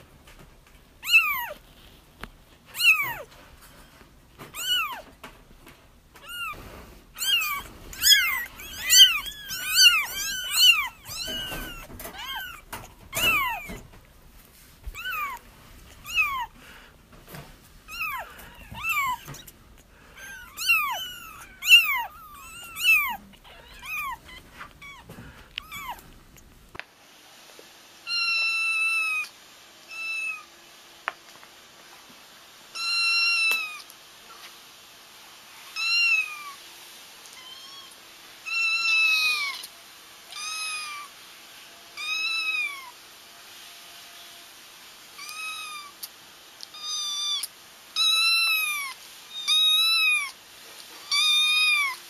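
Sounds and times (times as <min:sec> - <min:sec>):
kittens mewing: 0:01.0 - 0:01.7, 0:02.7 - 0:03.4, 0:04.4 - 0:05.2, 0:06.2 - 0:14.1, 0:14.8 - 0:16.8, 0:17.9 - 0:26.7, 0:46.7 - 0:50.4.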